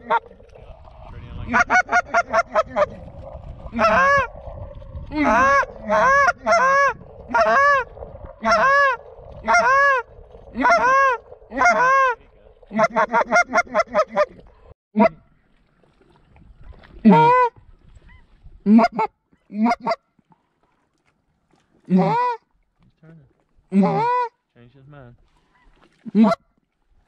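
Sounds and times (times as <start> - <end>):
goose clucking: 1.5 - 2.9, 5.3 - 10.0, 10.6 - 14.4
goose honking: 8.4 - 10.0, 10.6 - 14.3.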